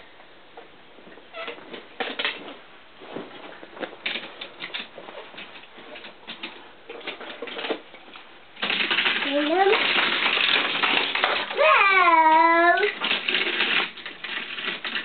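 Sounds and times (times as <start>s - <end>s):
toy cars clicking and clattering: 4.0s - 15.0s.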